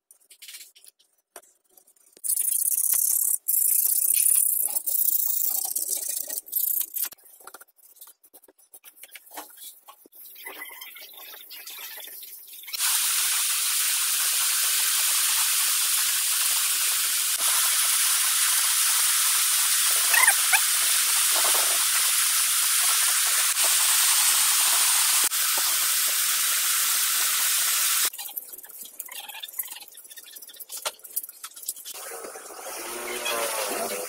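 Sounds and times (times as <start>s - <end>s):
air spray hissing: 12.8s - 28.1s.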